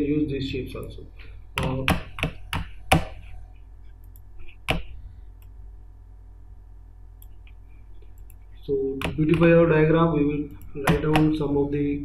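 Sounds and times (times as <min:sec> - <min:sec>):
computer mouse clicks: 0:07.2 - 0:08.4.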